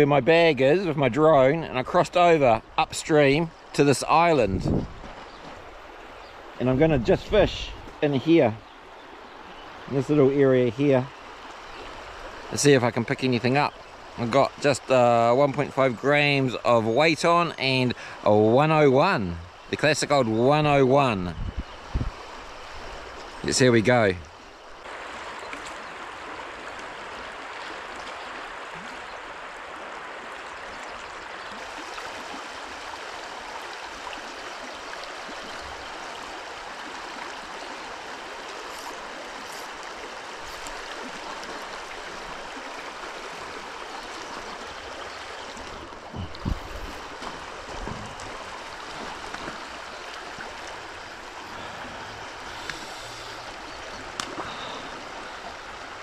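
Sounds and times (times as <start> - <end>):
river water flowing over shallows: 0.0 - 56.0
dull low knocks: 46.1 - 47.1.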